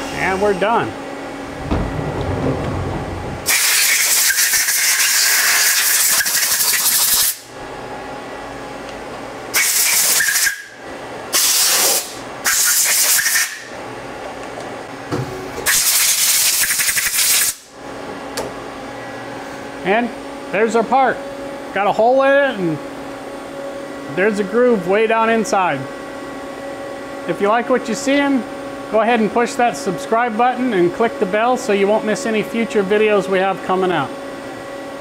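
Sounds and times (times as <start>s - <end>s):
low rumble: 1.4s - 3.8s
compressed air blow gun hissing: 3.4s - 7.4s.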